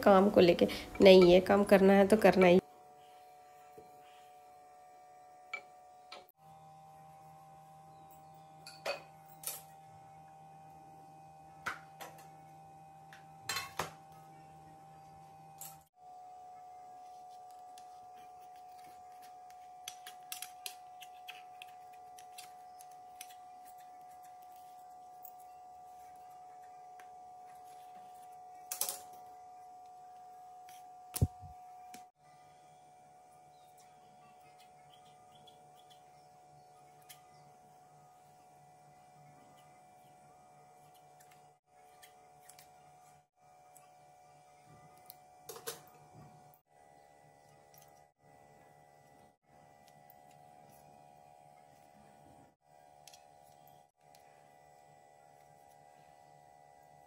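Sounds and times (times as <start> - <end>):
utensils and pans clinking: 13.5 - 14.0.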